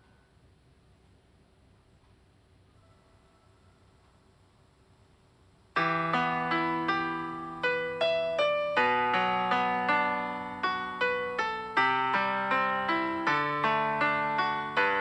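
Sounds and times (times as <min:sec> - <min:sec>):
slow piano music: 0:05.8 - 0:15.0.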